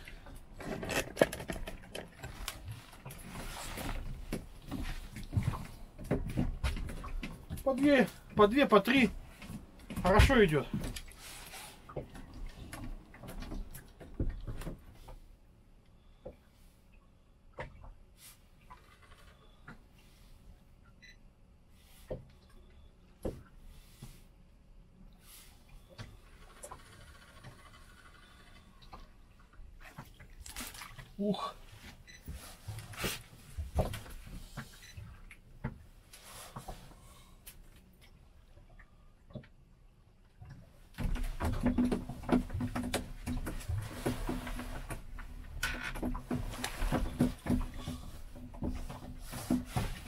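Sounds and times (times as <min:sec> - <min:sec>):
fishing gear knocks and clicks: 0:00.0 - 0:08.4, 0:41.0 - 0:50.0.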